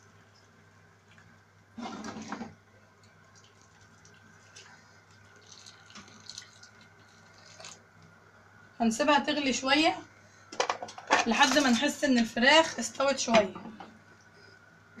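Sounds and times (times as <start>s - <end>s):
water trickling and dripping: 3.0s - 7.8s
water pouring into pot: 3.3s - 7.8s.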